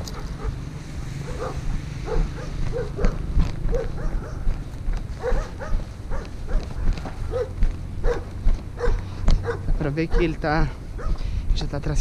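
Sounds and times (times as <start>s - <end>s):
wind rumble on microphone: 0.0s - 12.0s
dog whining yelps: 1.3s - 4.5s, 5.2s - 10.4s, 11.0s - 11.2s.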